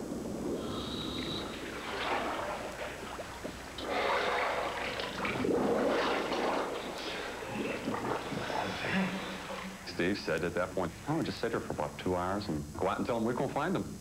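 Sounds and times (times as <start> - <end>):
exhaled bubbles gurgling: 0.0 - 13.8
scuba regulator breathing: 0.2 - 5.0.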